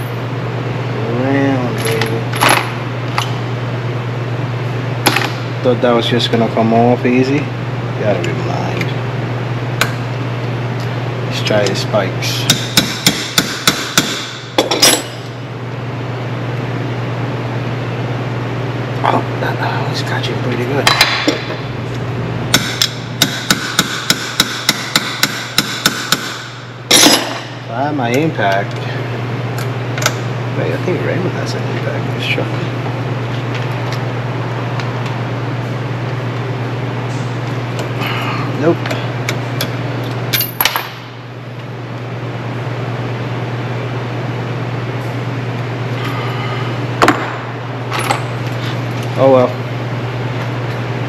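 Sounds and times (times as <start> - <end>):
machine humming: 0.0 - 51.0
hammer striking metal: 12.5 - 15.2, 22.5 - 27.6.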